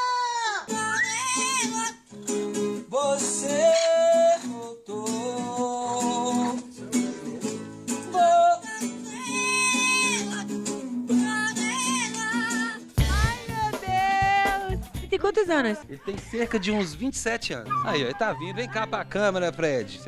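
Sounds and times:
parrot singing long notes: 0.1 - 2.0, 3.5 - 4.2
acoustic guitar strumming: 0.7 - 20.0
man singing: 2.8 - 10.5.

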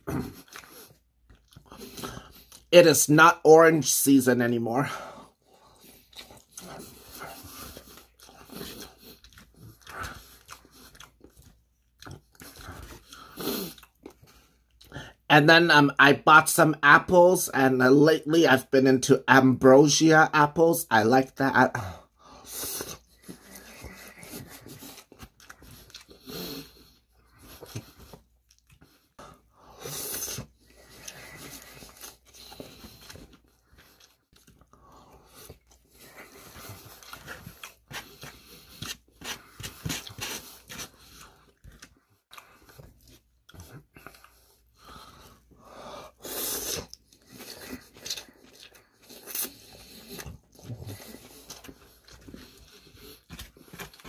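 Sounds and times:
person chewing crunchy food: 0.0 - 15.3, 21.6 - 54.0
noodle slurping: 22.3 - 43.0, 43.9 - 54.0.

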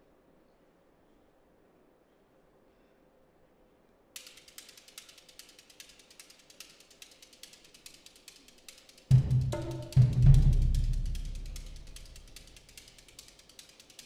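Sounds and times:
gourd shaker rattling: 4.2 - 14.0.

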